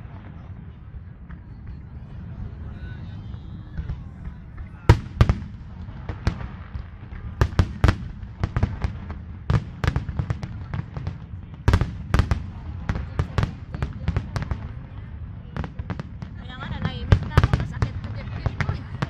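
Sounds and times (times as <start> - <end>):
low rumble: 0.0 - 9.5.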